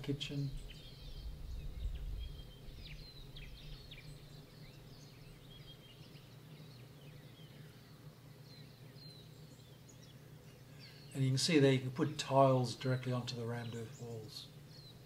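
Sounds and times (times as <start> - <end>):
low rumble: 0.0 - 4.3
low hum: 0.0 - 13.5
birds chirping and whistling: 0.0 - 15.0.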